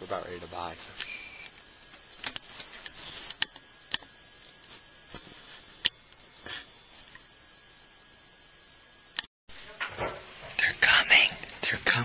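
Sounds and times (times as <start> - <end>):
faint high whine: 0.0 - 12.0
soft rustles: 4.6 - 5.8.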